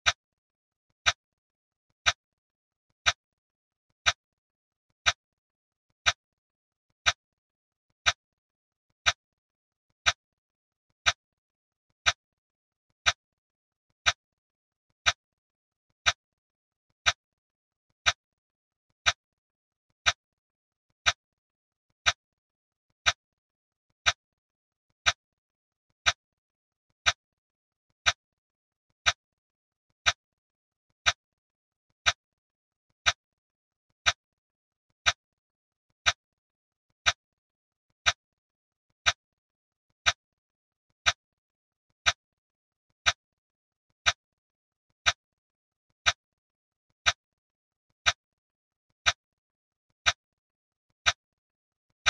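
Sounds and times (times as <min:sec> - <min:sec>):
clock-style timer ticks: 0:01.0 - 0:01.2, 0:01.9 - 0:02.2, 0:02.9 - 0:03.2, 0:03.9 - 0:04.2, 0:04.9 - 0:05.2, 0:05.9 - 0:06.2, 0:06.9 - 0:07.2, 0:07.9 - 0:08.2, 0:08.9 - 0:09.2, 0:09.9 - 0:10.2, 0:10.9 - 0:11.2, 0:12.0 - 0:12.2, 0:13.0 - 0:13.2, 0:13.9 - 0:14.2, 0:15.0 - 0:15.2, 0:16.0 - 0:16.2, 0:16.9 - 0:17.2, 0:18.0 - 0:18.2, 0:18.9 - 0:19.2, 0:19.9 - 0:20.2, 0:21.0 - 0:21.2, 0:22.0 - 0:22.2, 0:23.0 - 0:23.2, 0:24.0 - 0:24.2, 0:25.0 - 0:25.2, 0:26.0 - 0:26.2, 0:27.0 - 0:27.2, 0:28.0 - 0:28.2, 0:29.0 - 0:29.2, 0:30.0 - 0:30.2, 0:31.0 - 0:31.2, 0:32.0 - 0:32.2, 0:33.0 - 0:33.2, 0:34.0 - 0:34.2, 0:35.0 - 0:35.2, 0:36.0 - 0:36.2, 0:37.0 - 0:37.2.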